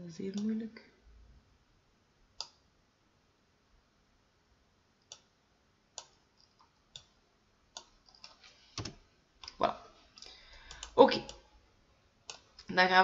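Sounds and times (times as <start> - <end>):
computer mouse clicks: 2.4 - 2.6, 5.0 - 5.3, 6.0 - 7.2, 7.8 - 9.6, 10.5 - 11.4, 12.3 - 12.7.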